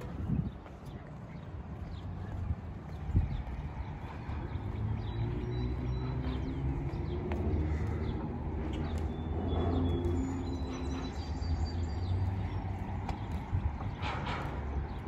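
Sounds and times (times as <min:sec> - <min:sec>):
small birds chirping: 0:00.1 - 0:15.0
footsteps on wooden planks: 0:06.1 - 0:11.2, 0:12.1 - 0:15.0.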